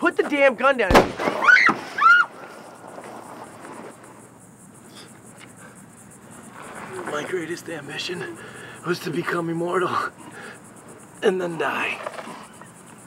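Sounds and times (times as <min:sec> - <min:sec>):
pistol firing a blank: 0:00.9 - 0:01.5.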